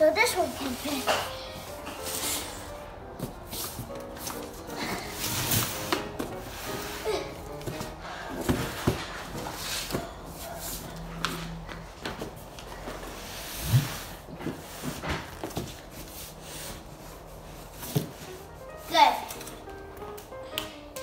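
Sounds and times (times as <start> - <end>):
cardboard boxes knocking and scraping: 7.5 - 10.1, 12.0 - 16.8
box thumping on tile floor: 7.6 - 10.1.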